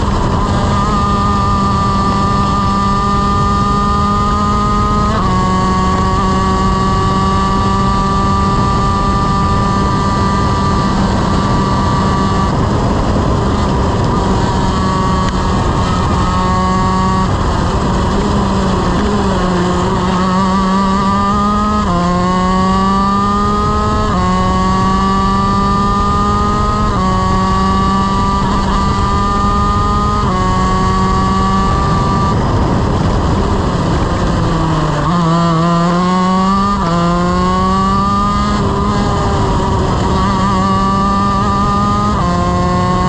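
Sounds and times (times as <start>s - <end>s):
kart engine revving: 0.0s - 43.0s.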